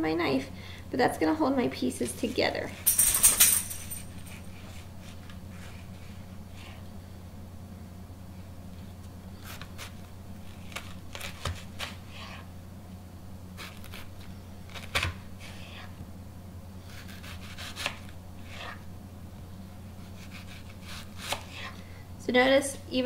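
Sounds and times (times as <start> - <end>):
steady low hum: 0.0 - 23.0
knife cutting onion on board: 16.9 - 18.8, 20.0 - 21.8.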